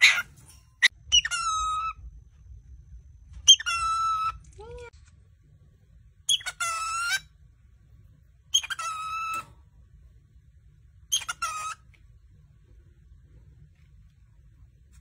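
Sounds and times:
cockatiel calls: 0:00.0 - 0:00.3, 0:01.1 - 0:02.0, 0:03.4 - 0:04.4, 0:06.3 - 0:07.3, 0:08.5 - 0:09.5, 0:11.1 - 0:12.0.

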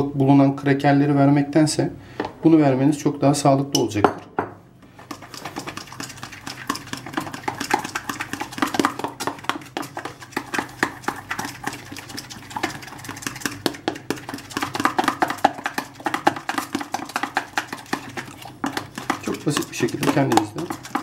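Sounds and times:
fork beating batter in plastic tub: 0:04.9 - 0:21.0.

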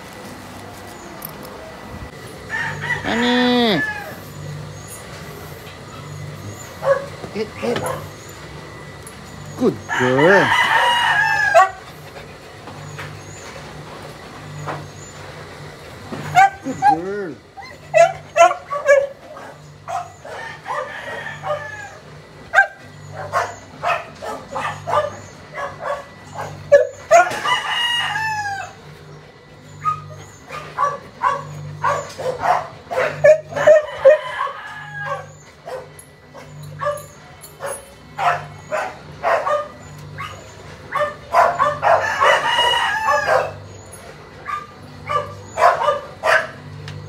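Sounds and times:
rooster crowing: 0:02.4 - 0:04.7, 0:09.8 - 0:11.9, 0:20.0 - 0:22.3, 0:27.0 - 0:28.9, 0:33.1 - 0:35.6, 0:41.4 - 0:43.7.

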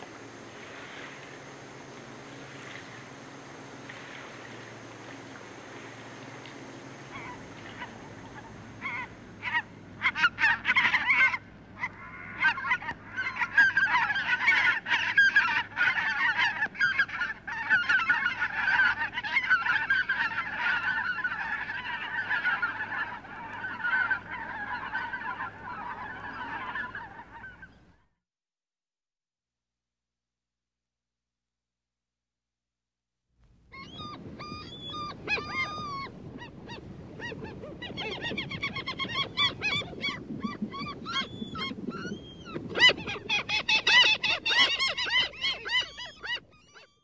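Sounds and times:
waterfowl calling: 0:05.8 - 0:27.9, 0:33.7 - 0:47.0.

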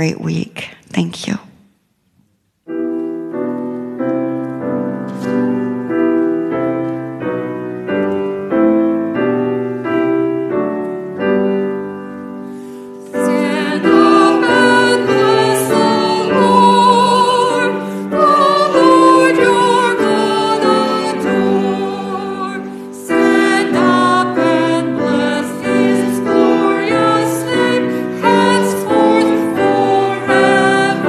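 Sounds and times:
piano playing hymn chords: 0:02.6 - 0:31.0
group of voices singing: 0:13.1 - 0:31.0.

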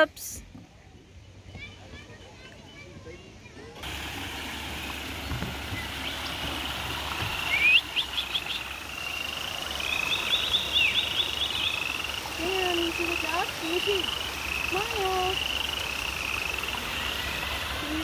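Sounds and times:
small waterfall rushing: 0:03.8 - 0:18.0
low wavering calls: 0:04.4 - 0:18.0
rapid high chirping trills: 0:07.3 - 0:18.0.

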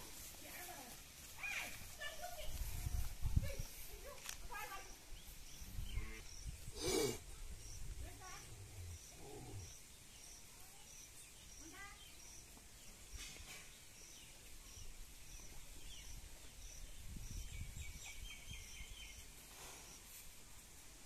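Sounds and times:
soft low rustle: 0:00.0 - 0:09.8
insects chirping: 0:04.5 - 0:12.5.

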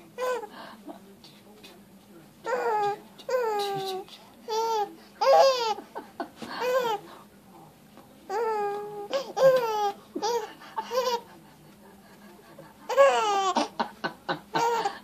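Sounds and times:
baby laughing: 0:02.5 - 0:05.9, 0:09.1 - 0:11.3, 0:12.9 - 0:13.8, 0:14.5 - 0:15.0.

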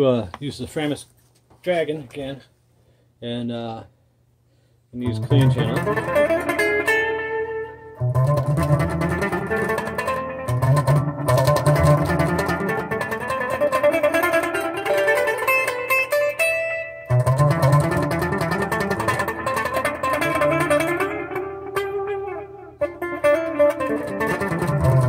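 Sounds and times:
clean electric guitar: 0:05.0 - 0:25.0.

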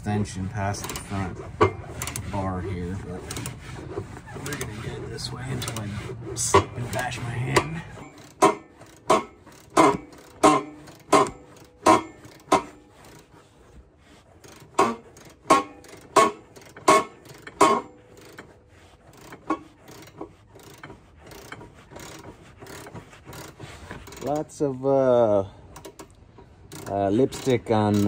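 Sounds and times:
ratchet clacking: 0:00.0 - 0:28.0.

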